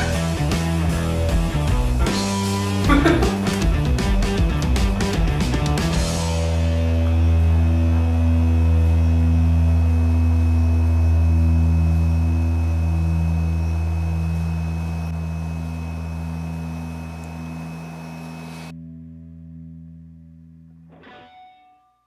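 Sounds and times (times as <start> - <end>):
low held chord: 5.9 - 20.7.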